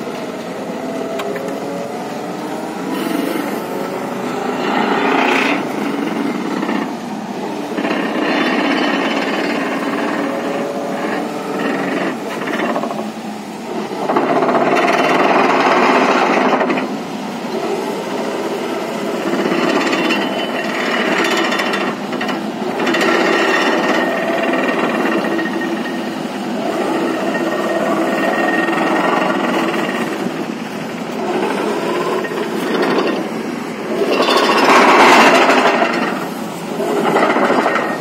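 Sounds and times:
vibratory pile hammer rattling: 0:31.2 - 0:38.0.

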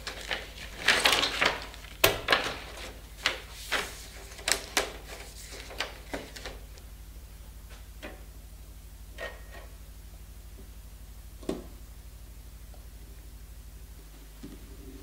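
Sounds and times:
plastic sheet rustling: 0:00.0 - 0:06.7
steady low hum: 0:00.0 - 0:15.0.

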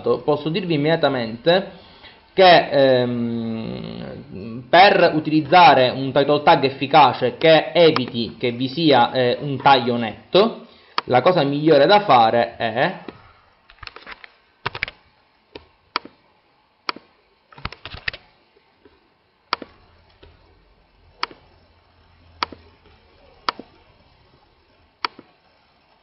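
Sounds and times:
mouse and keyboard clicks: 0:15.6 - 0:16.2, 0:16.9 - 0:18.2, 0:19.5 - 0:20.4, 0:21.2 - 0:21.4, 0:22.4 - 0:23.8, 0:25.0 - 0:25.3.

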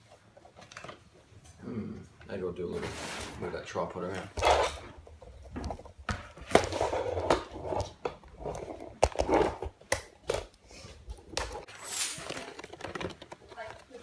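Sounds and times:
rustling: 0:10.7 - 0:14.0
packaging rustling: 0:11.2 - 0:14.0.

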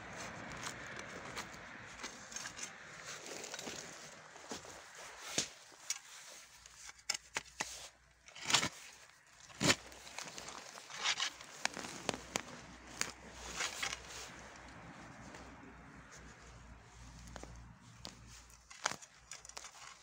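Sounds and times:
soil and dry leaves crackling: 0:00.0 - 0:20.0
spade crunching into soil: 0:02.0 - 0:14.4, 0:18.0 - 0:20.0.

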